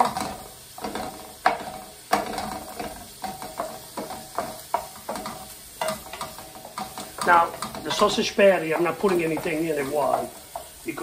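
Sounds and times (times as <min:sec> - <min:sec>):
food sizzling in a pan: 0:00.0 - 0:11.0
spatula scraping a pan: 0:00.0 - 0:11.0.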